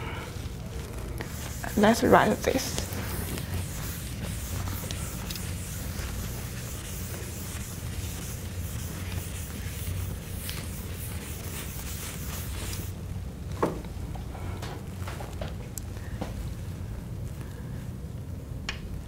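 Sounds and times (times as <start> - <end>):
low room hum: 0.0 - 19.0
chalk scratching on blackboard: 1.2 - 12.9.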